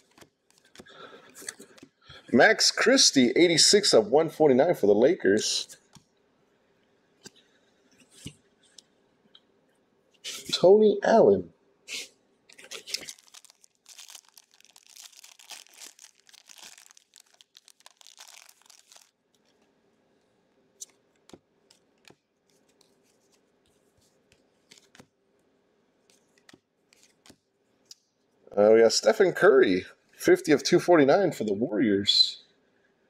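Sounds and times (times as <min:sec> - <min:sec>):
wrapper tearing and crinkling: 0:12.5 - 0:19.7.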